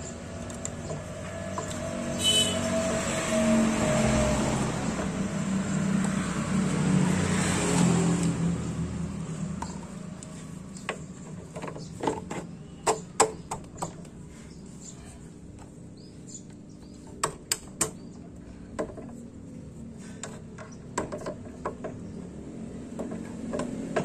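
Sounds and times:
road vehicle passing: 0:00.0 - 0:11.9, 0:18.1 - 0:24.0.

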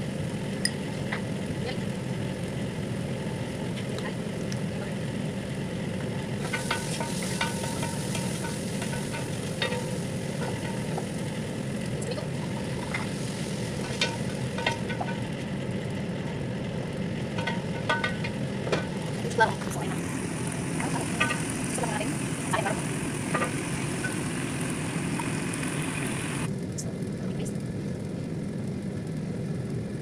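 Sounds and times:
low hum: 0:00.0 - 0:28.3
food sizzling in a pot: 0:05.2 - 0:26.5
wooden spoon knocking a pot: 0:06.4 - 0:11.5, 0:12.3 - 0:15.3, 0:17.4 - 0:19.0.

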